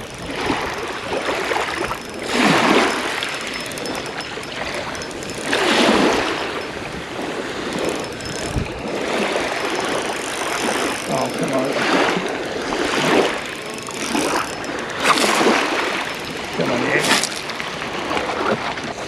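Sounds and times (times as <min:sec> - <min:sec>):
waves breaking on shingle beach: 0:05.5 - 0:19.0.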